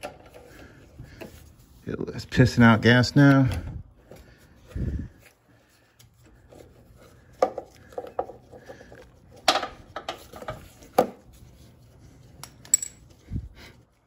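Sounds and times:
metal tool clinks and taps: 0:12.4 - 0:13.2.

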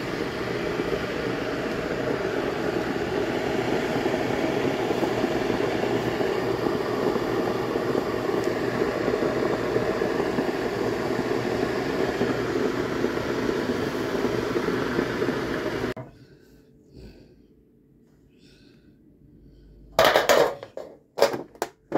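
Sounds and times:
machine whir: 0:00.0 - 0:16.0.

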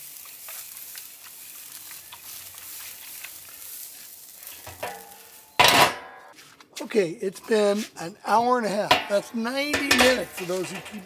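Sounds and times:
ribs sizzling and crackling: 0:00.0 - 0:05.8, 0:07.4 - 0:11.0
metal lid clanging onto drum: 0:04.7 - 0:06.3, 0:08.9 - 0:11.0.

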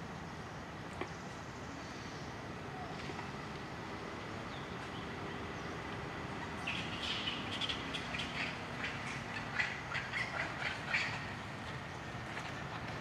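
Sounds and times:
steady hiss: 0:00.0 - 0:11.9
birds chirping: 0:04.2 - 0:12.8.

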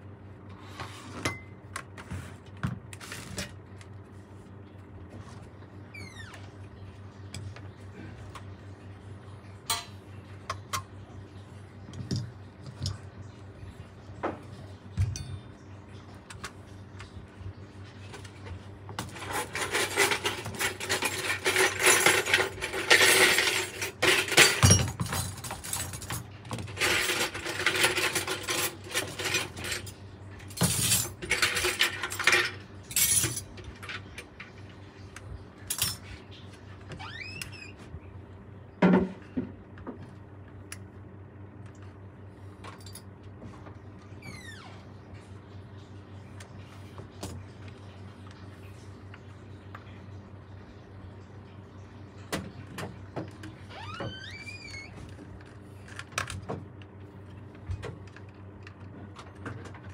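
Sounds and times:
metal tools clinking and scraping: 0:19.0 - 0:34.1.

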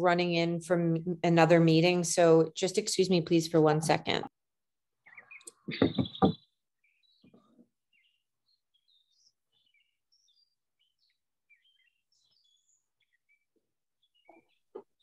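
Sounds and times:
faint songbird chirps: 0:05.0 - 0:15.0.

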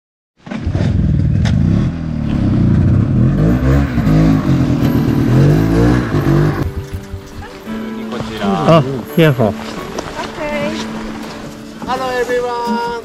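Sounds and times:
snowmobile engines revving: 0:01.8 - 0:06.8.

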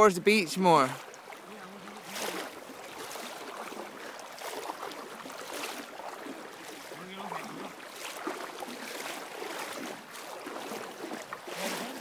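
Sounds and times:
river current rushing: 0:00.0 - 0:12.0.

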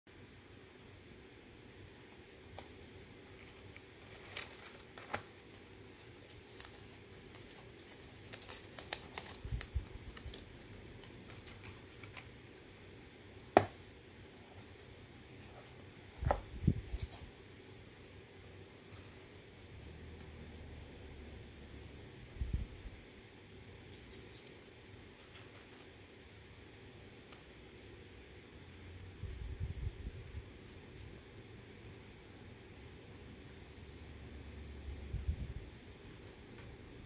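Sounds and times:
card and paper rustling: 0:02.0 - 0:12.7, 0:23.9 - 0:26.1.

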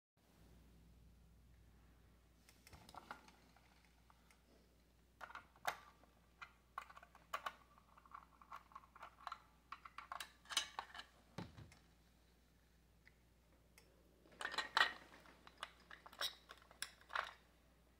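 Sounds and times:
plastic toy handling: 0:05.2 - 0:11.8.

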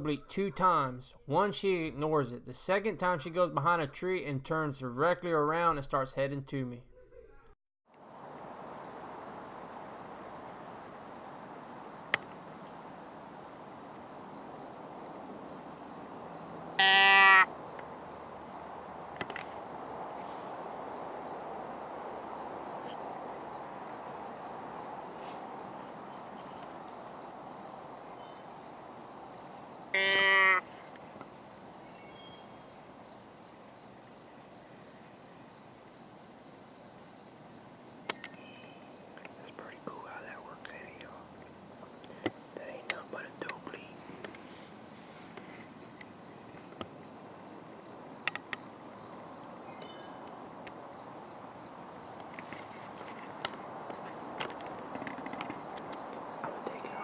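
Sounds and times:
insects chirping: 0:07.9 - 0:57.0
deer call bleat: 0:16.8 - 0:17.5, 0:29.9 - 0:30.7.

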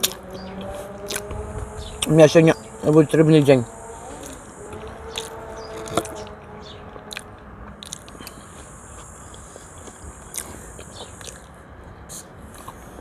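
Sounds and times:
chewing bread: 0:01.0 - 0:01.3, 0:04.2 - 0:11.6.

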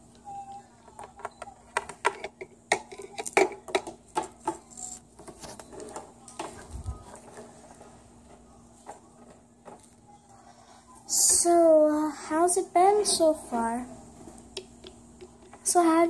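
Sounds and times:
plastic toys clicking and tapping: 0:00.9 - 0:06.6.

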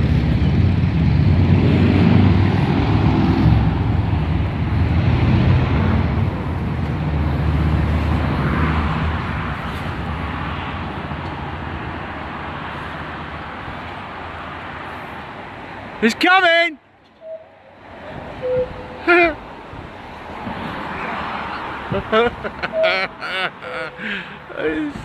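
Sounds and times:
vehicle engine passing: 0:00.0 - 0:15.1.

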